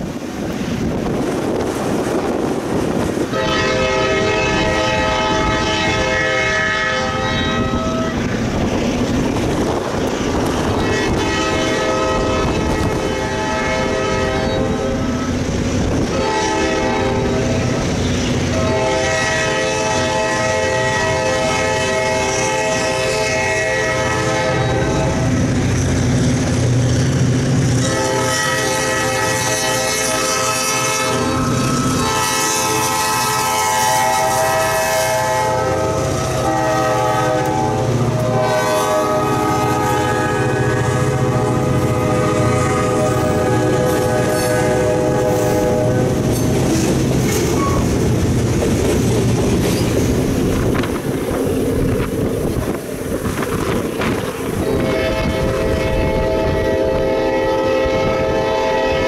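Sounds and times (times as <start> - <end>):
diesel train rumble: 0.0 - 59.0
locomotive air horn blasts: 3.3 - 8.4, 10.6 - 25.5, 27.8 - 48.0, 54.5 - 59.0.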